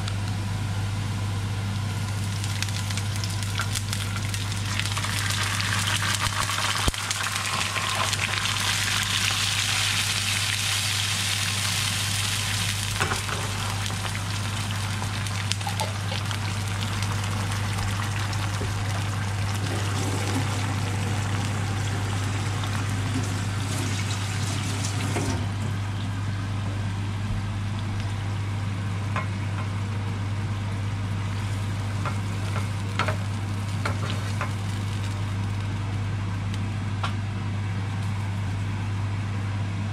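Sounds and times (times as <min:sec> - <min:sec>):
sauce sizzling in a frying pan: 0:02.0 - 0:24.4, 0:31.3 - 0:35.7.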